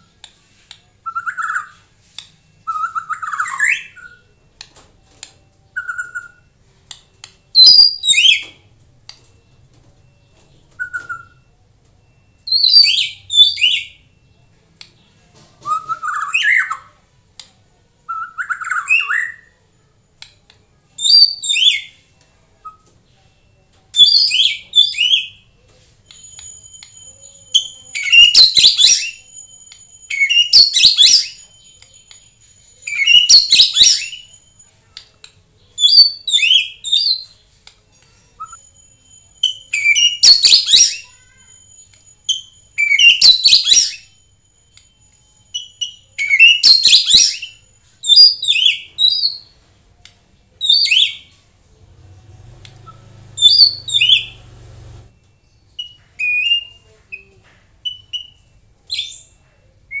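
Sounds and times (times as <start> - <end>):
bird singing: 5.4 - 6.5, 7.2 - 8.7, 26.1 - 35.1, 38.0 - 49.6.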